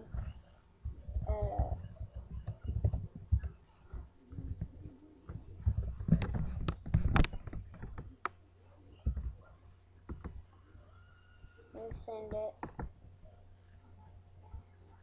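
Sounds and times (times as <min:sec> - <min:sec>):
low steady hum: 0:00.0 - 0:15.0
computer keyboard and mouse clicks: 0:10.1 - 0:10.4.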